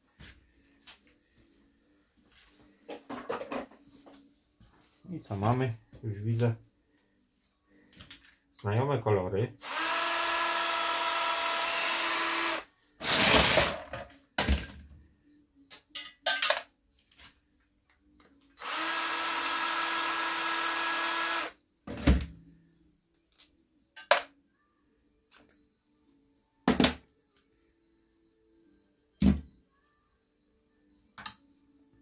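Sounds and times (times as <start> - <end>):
cordless drill whining: 9.6 - 13.6, 18.6 - 21.5.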